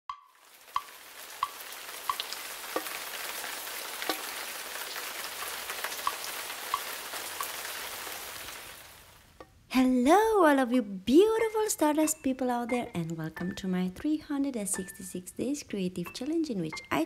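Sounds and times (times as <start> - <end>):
single raindrops plinking: 0.1 - 9.6
falling rain hiss: 0.4 - 9.4.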